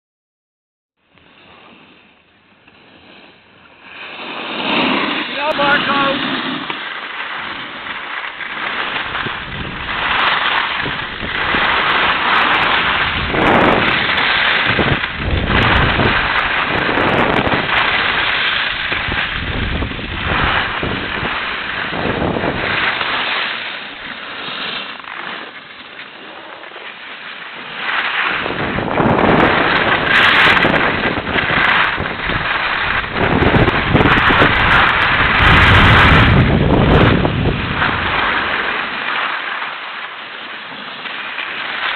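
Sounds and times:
snowboard scraping over snow: 1.2s - 41.9s
wind buffeting microphone: 8.7s - 23.2s, 28.3s - 38.9s.

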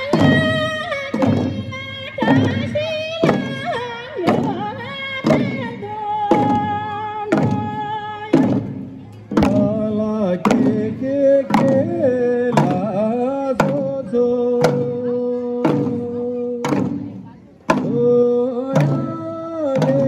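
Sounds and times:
hand drums beating: 0.0s - 20.0s
person singing long notes: 17.7s - 20.0s.

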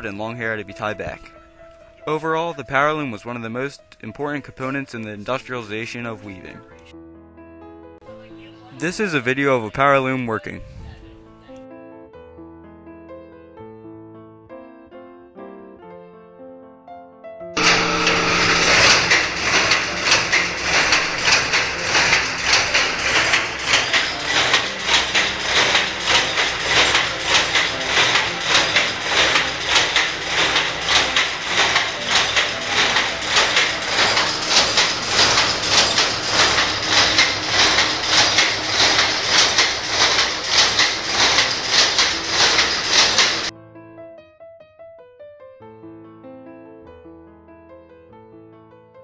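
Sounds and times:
power loom clattering: 0.0s - 1.4s, 17.6s - 43.5s.

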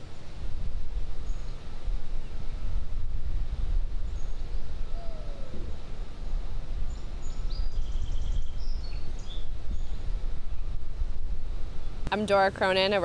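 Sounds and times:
wind buffeting microphone: 0.0s - 12.9s
faint bird chirps: 4.0s - 5.9s, 6.8s - 10.7s.

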